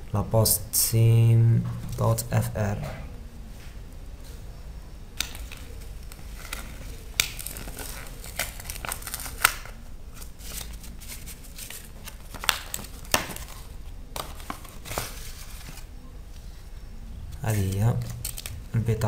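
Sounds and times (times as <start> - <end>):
paper packaging crinkling and tearing: 5.2 - 15.9, 17.3 - 18.8.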